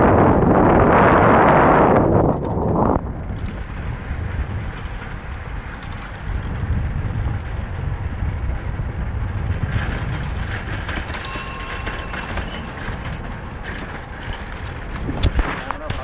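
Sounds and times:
vehicle engine and tyres rumbling: 0.0s - 16.0s
wind noise from open window: 0.0s - 16.0s
thin high tone: 11.1s - 13.2s.

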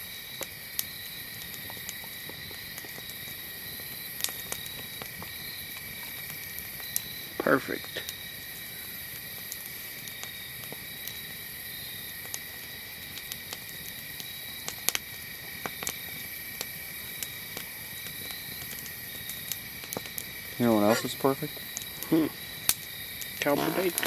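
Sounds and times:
crickets and insects trilling: 0.0s - 24.0s
sharp clicks and pops: 23.4s - 24.0s.

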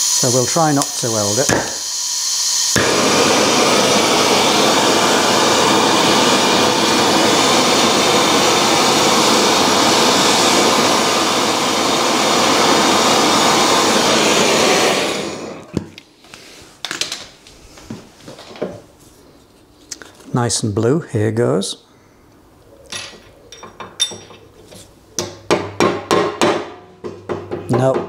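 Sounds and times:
blowtorch hissing: 0.0s - 16.6s.

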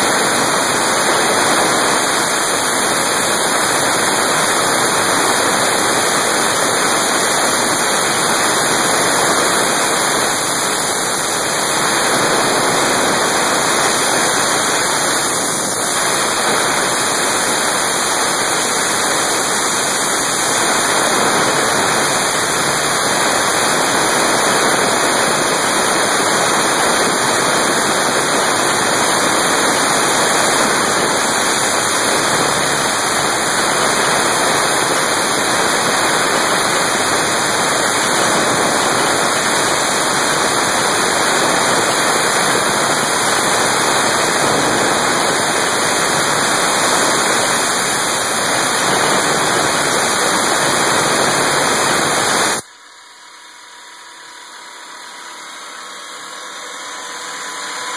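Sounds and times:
milling machine running: 0.0s - 52.6s
air nozzle hissing: 0.1s - 40.4s.

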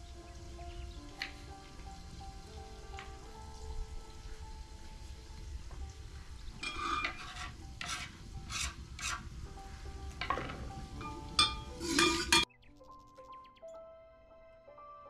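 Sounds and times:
faint background music: 0.0s - 15.0s
metal ladle stirring in pot: 6.5s - 9.3s, 10.2s - 12.5s
chillies scraped into metal pot: 6.6s - 9.3s, 10.2s - 12.5s.

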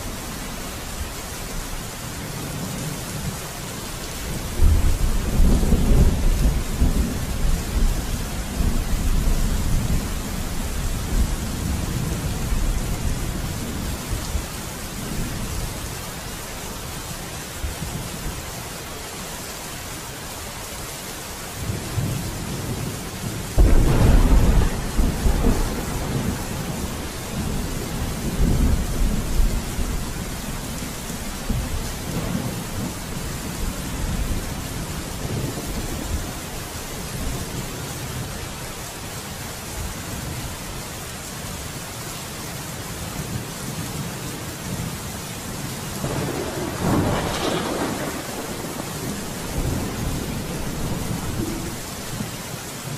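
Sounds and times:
steady rain: 0.0s - 52.9s
rolling thunder: 4.4s - 15.7s, 21.7s - 37.6s, 46.0s - 52.3s.

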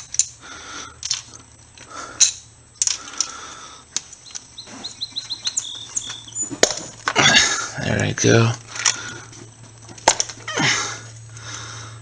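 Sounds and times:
plastic connectors clicking and rattling: 1.0s - 4.5s
small bird chirping: 4.2s - 6.6s.

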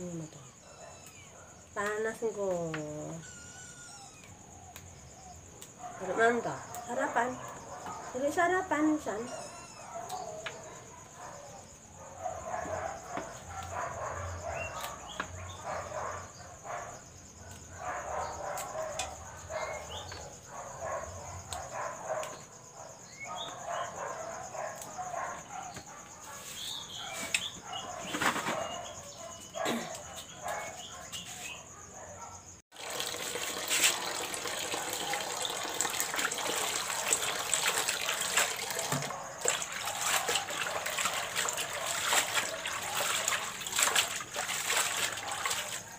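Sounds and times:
leaves splashing in water: 32.8s - 45.9s.

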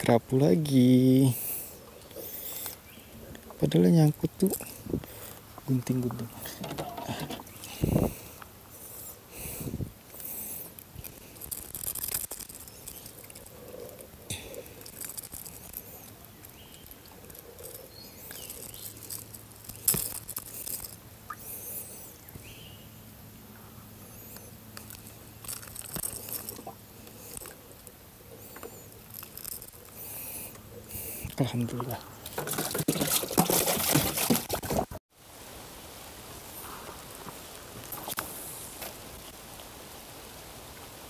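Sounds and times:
fishing tackle clicks and rustles: 4.3s - 22.2s, 24.2s - 35.0s.

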